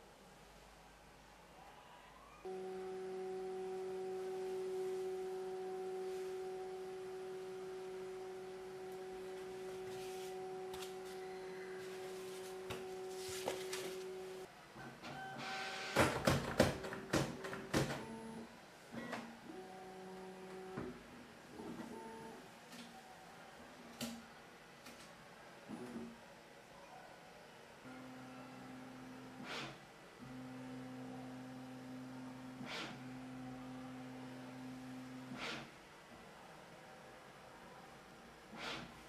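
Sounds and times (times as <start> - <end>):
printer motors humming: 2.5 - 22.5.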